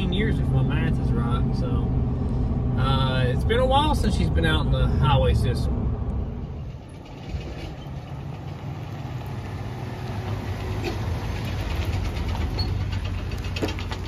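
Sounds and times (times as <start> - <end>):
truck engine idling: 6.0 - 14.0.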